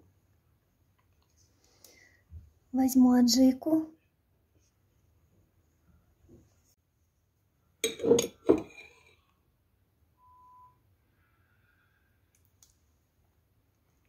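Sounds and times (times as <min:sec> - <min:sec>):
metal spoon clinking glass jar: 0:07.8 - 0:09.1.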